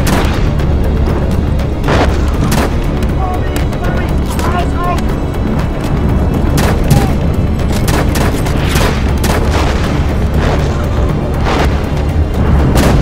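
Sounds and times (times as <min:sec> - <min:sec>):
film score music: 0:00.0 - 0:13.0
steady low rumble: 0:00.0 - 0:13.0
sharp rifle shots: 0:07.8 - 0:10.0.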